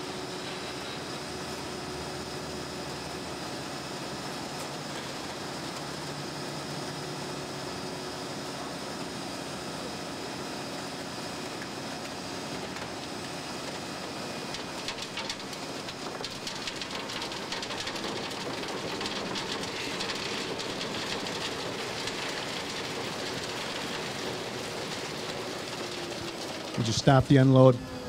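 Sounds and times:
truck hum: 12.6 - 28.0.

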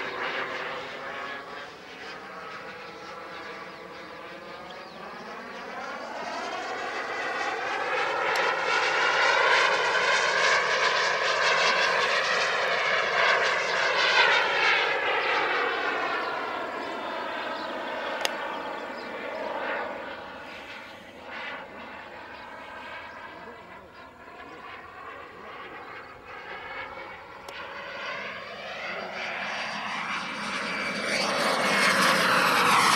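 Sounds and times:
model jet turbine whining: 0.0 - 32.9
sharp click: 18.2 - 18.4.

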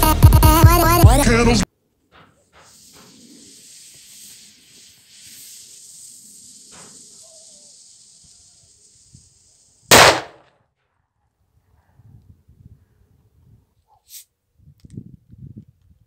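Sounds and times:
firecracker fuse hissing: 2.2 - 10.2
firecracker bang: 9.9 - 10.5.

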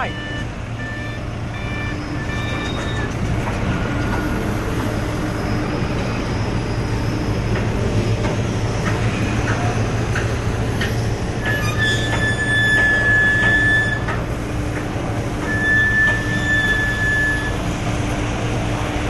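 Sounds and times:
short beeps: 0.0 - 3.1
heavy machinery rumbling: 0.0 - 19.0.

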